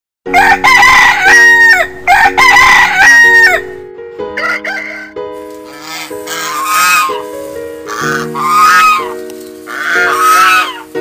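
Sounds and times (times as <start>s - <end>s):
rooster crowing: 0.3s - 3.6s, 4.4s - 5.2s.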